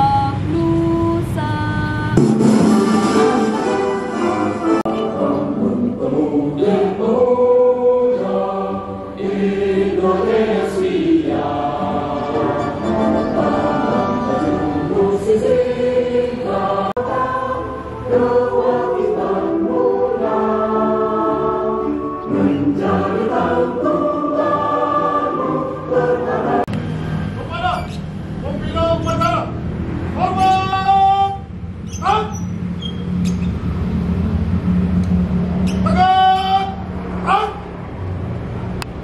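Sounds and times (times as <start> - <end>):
musical accompaniment: 2.2 - 15.9, 16.5 - 26.7
choir singing slow song: 2.9 - 27.2.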